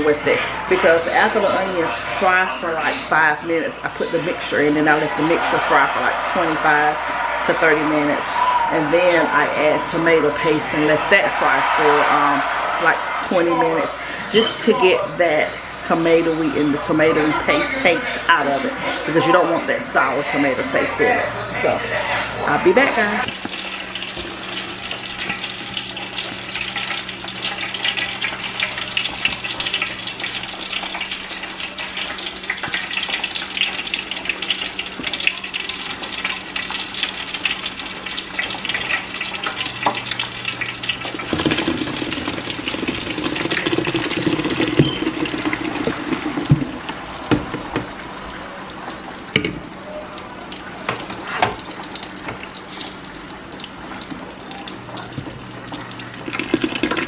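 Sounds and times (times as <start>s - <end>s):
onions sizzling in hot oil: 22.9s - 57.0s.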